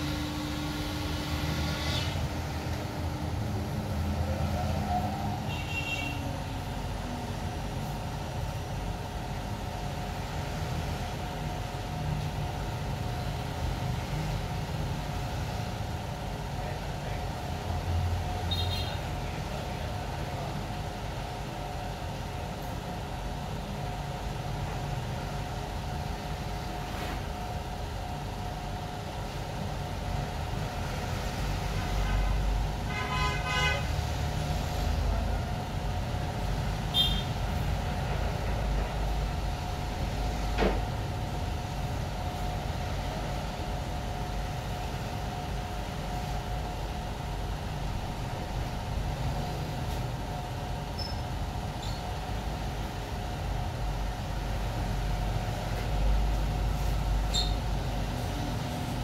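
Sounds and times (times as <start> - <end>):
workshop machinery humming: 0.0 - 59.0
pulsing horn-like toot: 4.4 - 6.3.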